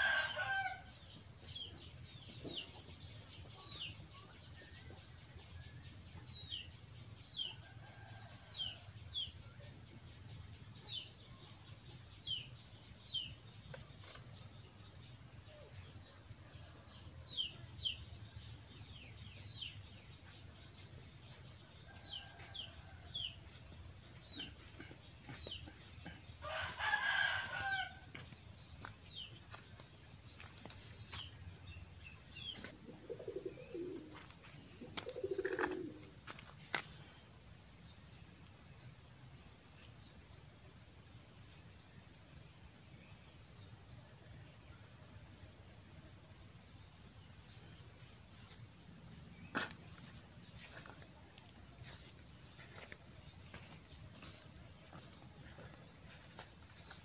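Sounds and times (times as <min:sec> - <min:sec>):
rooster crowing: 0:00.0 - 0:00.9, 0:26.4 - 0:28.2.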